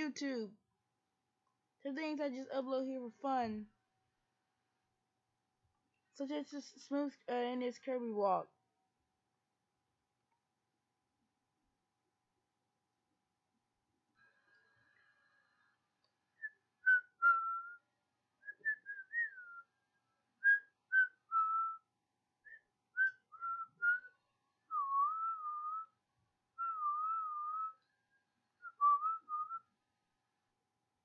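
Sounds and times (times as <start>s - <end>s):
person whistling a tune: 16.4s - 17.8s, 18.4s - 19.7s, 20.4s - 21.9s, 22.5s - 24.1s, 24.7s - 26.0s, 26.6s - 27.8s, 28.6s - 29.6s.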